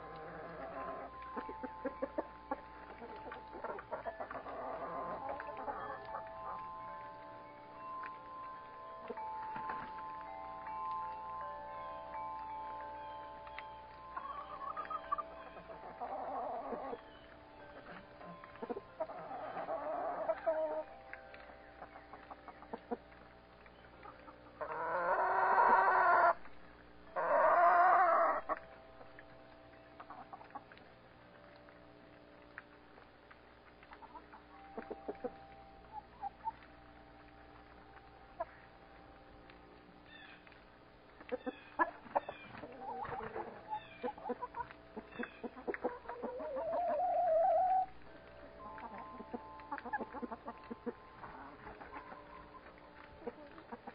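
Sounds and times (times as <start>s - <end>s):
hens clucking: 0.0s - 6.8s, 14.1s - 20.9s, 23.9s - 26.4s, 27.2s - 28.6s, 33.9s - 36.6s, 41.2s - 48.0s, 48.6s - 53.9s
chickens clucking softly: 17.8s - 20.9s, 24.0s - 26.4s, 27.2s - 28.6s, 41.3s - 47.9s
chicken drawn-out loud calls: 24.6s - 26.4s, 27.2s - 28.6s.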